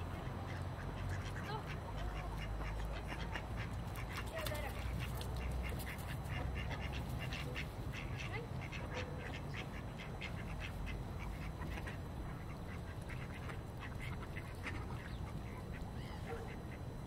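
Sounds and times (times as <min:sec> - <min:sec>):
ducks quacking: 0:00.0 - 0:17.0
steady low rumble: 0:04.8 - 0:17.0.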